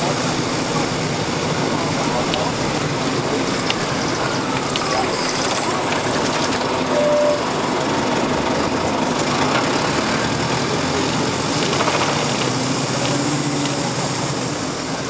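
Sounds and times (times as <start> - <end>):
bus engine running: 0.0 - 15.0
road noise: 0.0 - 15.0
brief high tone: 6.8 - 7.6.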